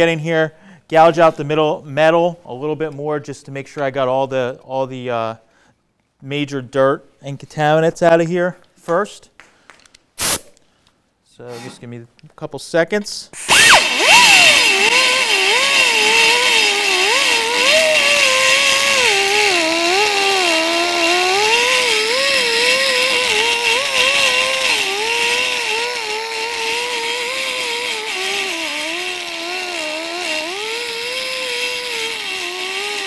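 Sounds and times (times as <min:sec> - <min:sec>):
die grinder whining: 0:13.4 - 0:33.0.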